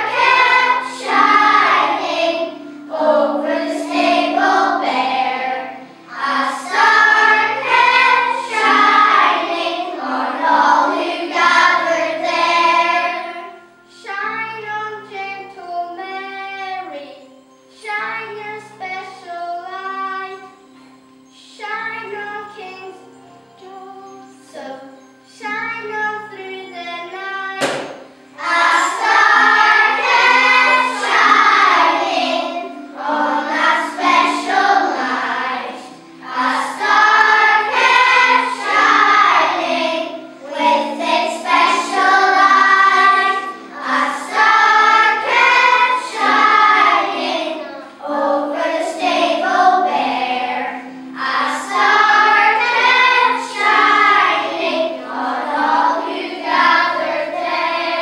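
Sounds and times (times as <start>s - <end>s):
children singing: 0.0s - 17.3s, 21.6s - 58.0s
musical accompaniment: 0.0s - 58.0s.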